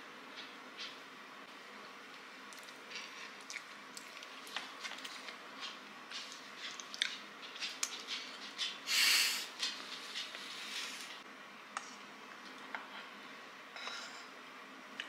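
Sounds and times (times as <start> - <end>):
chewing hard chocolate: 2.5 - 8.8.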